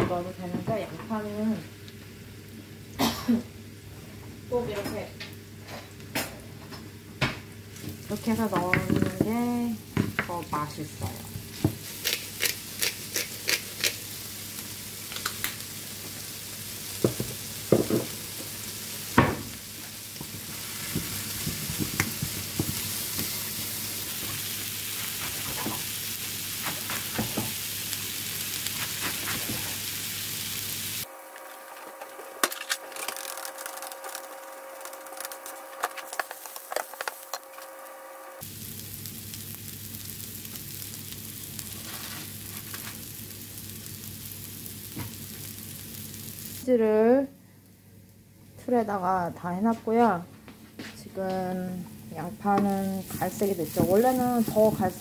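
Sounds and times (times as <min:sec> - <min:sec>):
onions sizzling in a frying pan: 0:00.1 - 0:48.0, 0:51.2 - 0:55.0
wooden spoon knocking on pan: 0:08.5 - 0:09.4, 0:17.0 - 0:18.2, 0:20.2 - 0:22.8.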